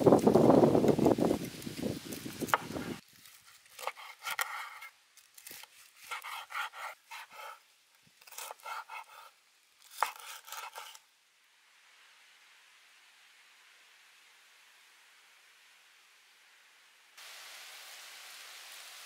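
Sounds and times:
knife crunching crispy pork skin: 3.2s - 7.4s, 9.8s - 11.0s.

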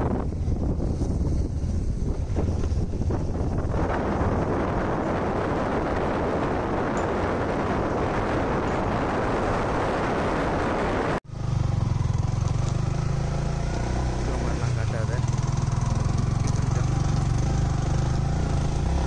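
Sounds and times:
motorcycle engine: 0.0s - 19.0s
wind on microphone: 0.0s - 19.0s.

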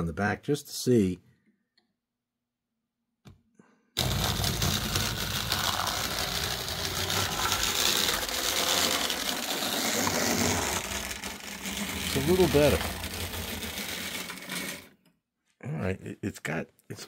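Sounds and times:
model train motor whir: 4.0s - 15.0s.

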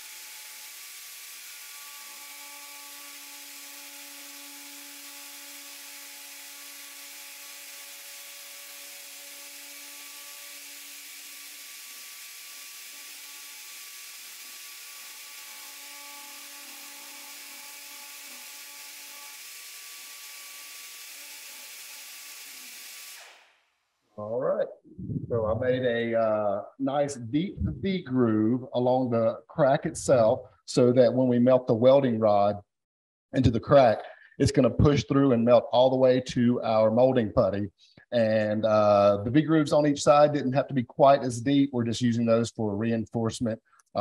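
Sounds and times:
rotary tool whining: 0.0s - 23.6s.

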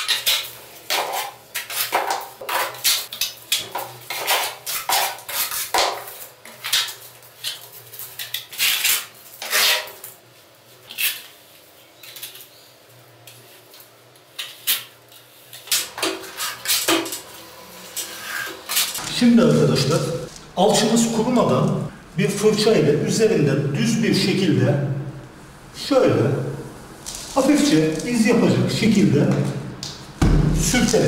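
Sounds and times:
trowel scraping wet plaster: 4.1s - 6.9s.

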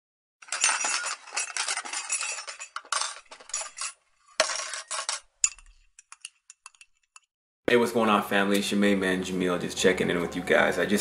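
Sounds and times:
metallic clattering and clinking: 0.4s - 7.3s.

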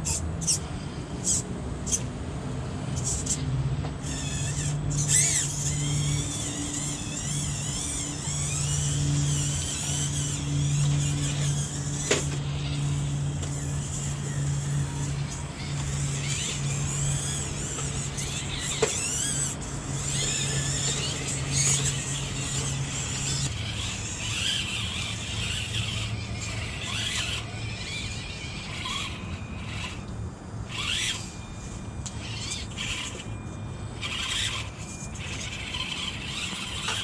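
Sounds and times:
small electric motors whining: 0.0s - 37.0s
steady low hum: 0.0s - 37.0s.

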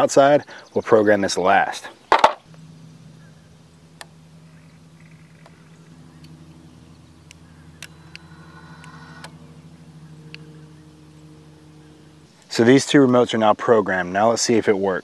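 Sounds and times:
steady low hum: 1.0s - 14.8s.

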